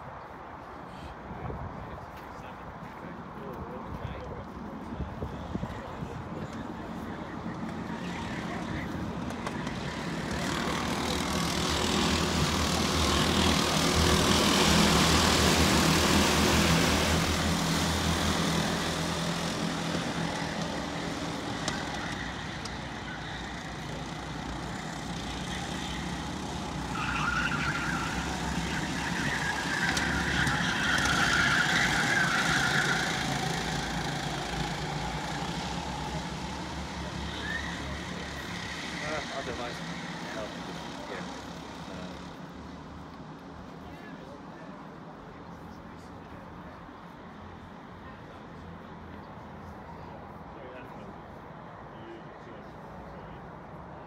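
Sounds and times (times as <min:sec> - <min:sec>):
racing kart engines buzzing: 0:05.4 - 0:43.8.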